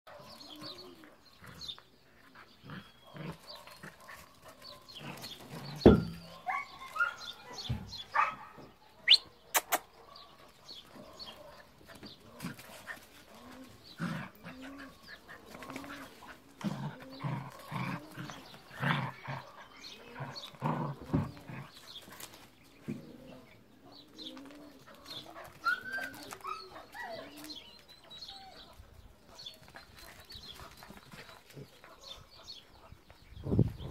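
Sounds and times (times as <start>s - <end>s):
puppies growling and yipping: 12.0s - 31.8s
puppies whining: 13.2s - 19.1s, 23.0s - 31.5s.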